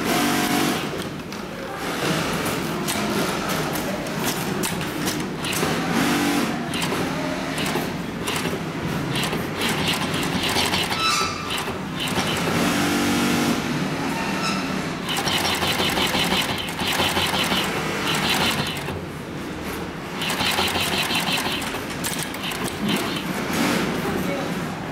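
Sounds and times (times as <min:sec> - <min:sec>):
factory hum: 0:00.0 - 0:24.9
sewing machine stitching: 0:04.2 - 0:13.3, 0:15.0 - 0:19.1, 0:20.0 - 0:24.0.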